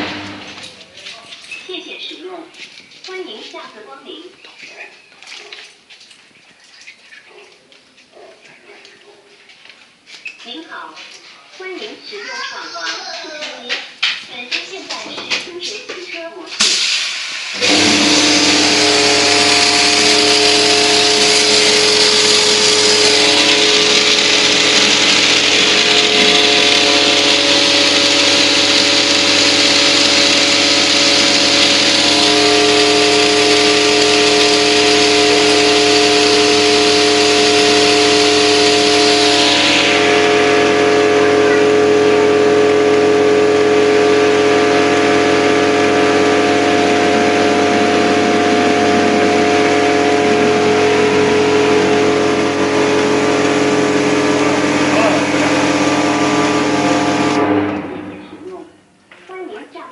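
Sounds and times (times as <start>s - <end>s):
car wash motor hum: 0.0s - 1.3s, 16.6s - 59.0s
high-pressure spray hiss: 16.6s - 40.0s.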